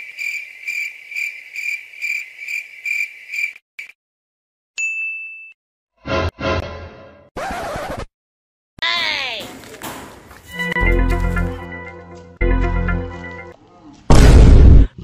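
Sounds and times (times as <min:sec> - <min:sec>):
cricket chirping: 0:00.0 - 0:03.6
bright ding: 0:04.8 - 0:05.6.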